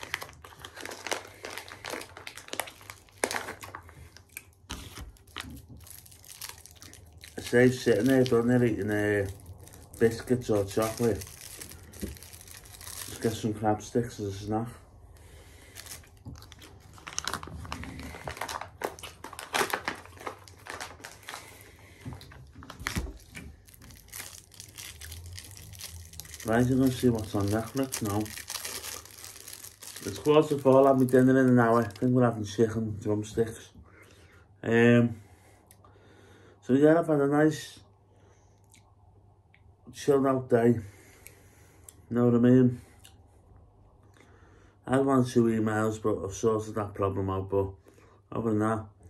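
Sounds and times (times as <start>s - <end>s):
plastic packaging crinkling: 0.0s - 13.5s, 15.6s - 32.3s.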